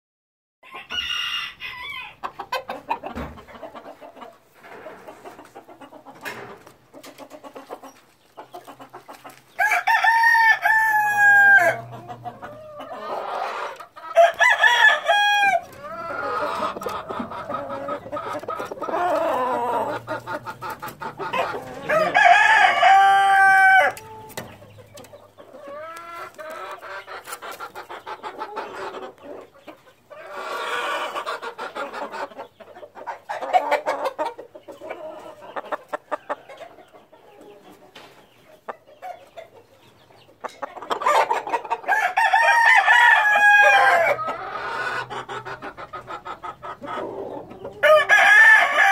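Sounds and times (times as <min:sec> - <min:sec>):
roosters crowing: 0:00.6 - 0:02.6, 0:09.3 - 0:24.8, 0:41.0 - 0:45.5, 0:46.6 - 0:48.9
chickens clucking: 0:00.6 - 0:48.9.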